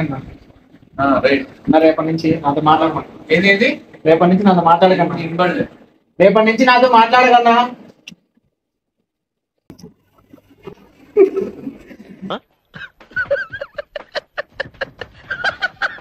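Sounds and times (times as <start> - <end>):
man laughing: 11.2 - 16.0.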